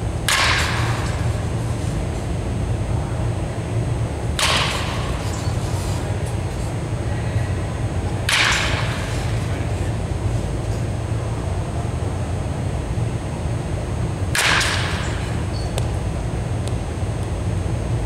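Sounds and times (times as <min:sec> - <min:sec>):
steady low hum: 0:00.0 - 0:18.0
baseball bat hitting ball: 0:00.2 - 0:01.2, 0:04.4 - 0:05.3, 0:08.2 - 0:09.4, 0:14.3 - 0:15.9.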